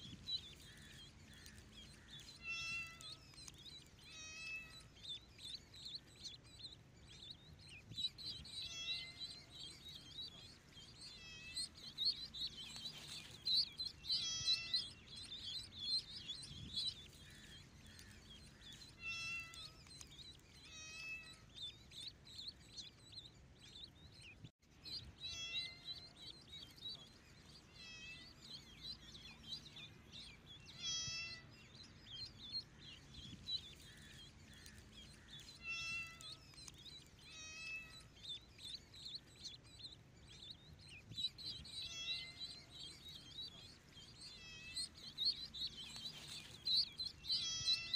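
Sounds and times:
ducklings peeping: 0.0s - 47.9s
kittens meowing: 2.2s - 3.4s, 4.0s - 4.9s, 8.2s - 10.5s, 11.1s - 12.0s, 12.6s - 16.0s, 16.9s - 19.9s, 20.5s - 21.4s, 25.3s - 26.1s, 30.7s - 31.5s, 35.4s - 36.6s, 37.2s - 38.1s, 41.5s - 43.7s, 44.3s - 45.2s, 45.9s - 47.9s.

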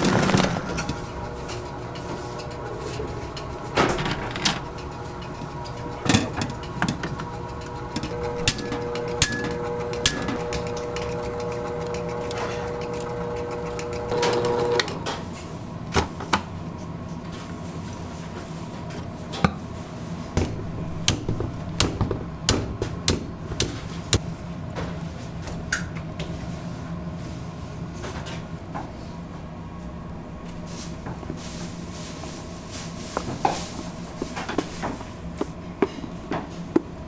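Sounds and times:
stand mixer motor running: 0.0s - 2.8s, 5.2s - 14.9s.

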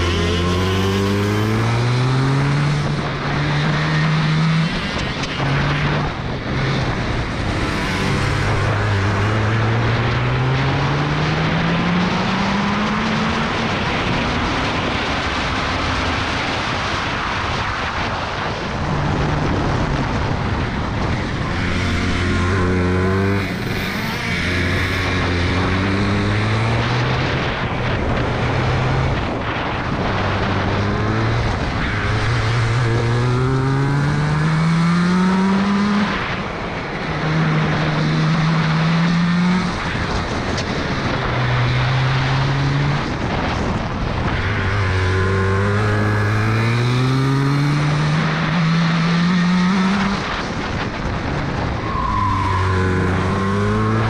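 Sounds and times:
kart engine revving: 0.0s - 14.2s, 20.3s - 29.3s, 30.0s - 50.8s, 51.9s - 54.0s
wind and road noise: 0.0s - 54.0s.

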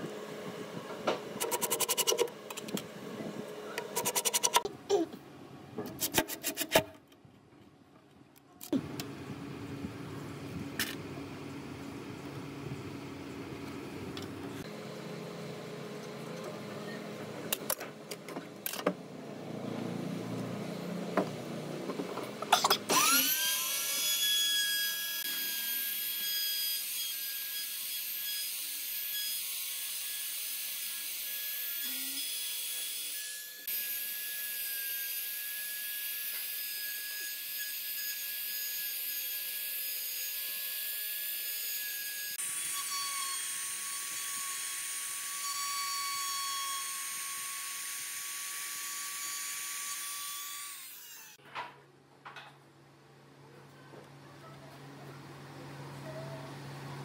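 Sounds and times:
trim router whining: 22.9s - 29.3s.

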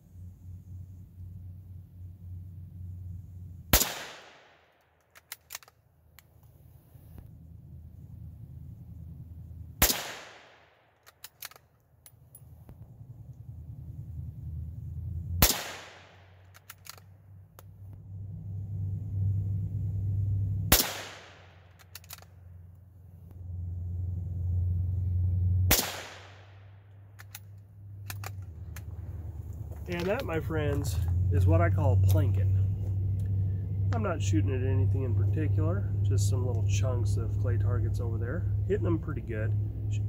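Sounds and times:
low rumble: 0.0s - 40.0s
rifle shots echoing: 3.7s - 4.8s, 9.8s - 11.5s, 15.4s - 17.0s, 20.7s - 22.0s, 25.7s - 26.8s
rifle bolt clicks: 5.0s - 6.3s, 11.0s - 12.2s, 16.4s - 17.7s, 21.7s - 22.3s, 27.2s - 28.8s.

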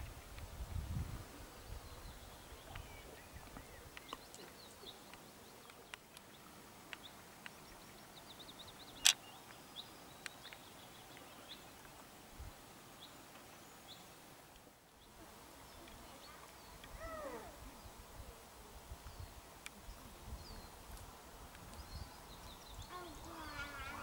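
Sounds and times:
small birds calling: 21.7s - 24.0s.

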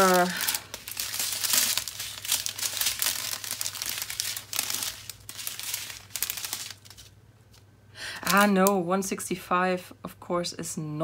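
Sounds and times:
plastic bags crinkling: 0.0s - 7.6s, 8.2s - 8.7s.

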